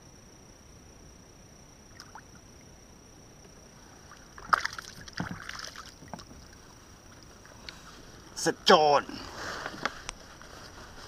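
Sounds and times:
faint high whine: 0.0 - 11.0
water splashing against kayak hull: 4.1 - 8.3.

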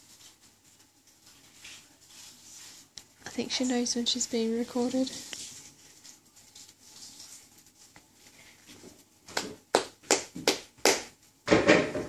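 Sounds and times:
hands clapping: 9.3 - 11.2.

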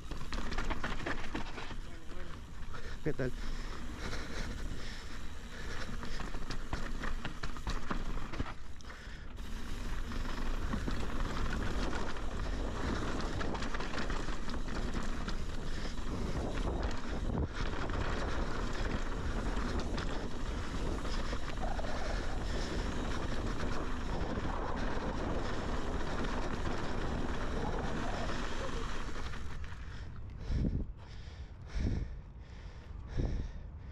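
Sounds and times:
bike rattles and knocks: 0.0 - 30.0
wind buffeting microphone: 9.4 - 33.9.

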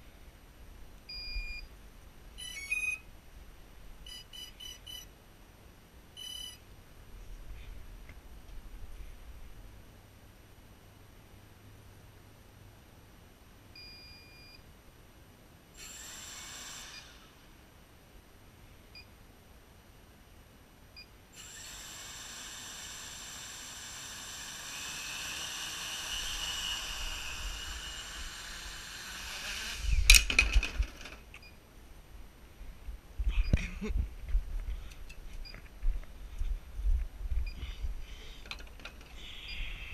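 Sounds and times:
double-tone beep: 2.4 - 3.0, 4.1 - 5.1, 6.2 - 6.6
quadcopter motors whining: 15.8 - 17.4, 21.4 - 31.0.

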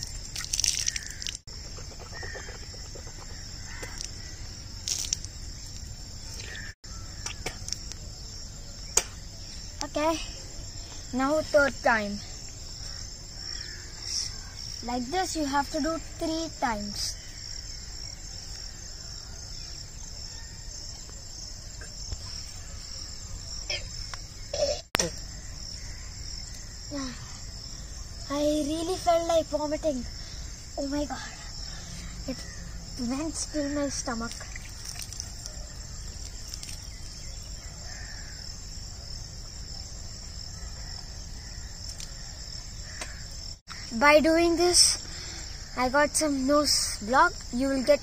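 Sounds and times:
insects chirring: 0.0 - 48.0.

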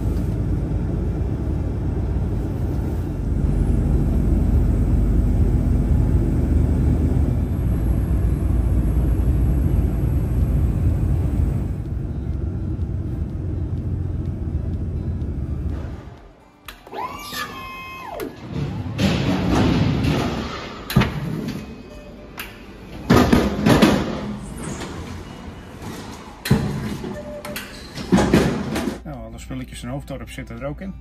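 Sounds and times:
truck engine and road rumble: 0.0 - 16.8.

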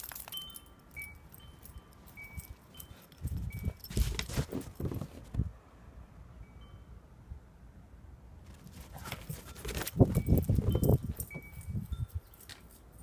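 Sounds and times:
wind chimes tinkling: 0.0 - 4.9, 6.4 - 7.2, 9.2 - 13.0
rustling noise: 2.1 - 5.5, 8.5 - 13.0.

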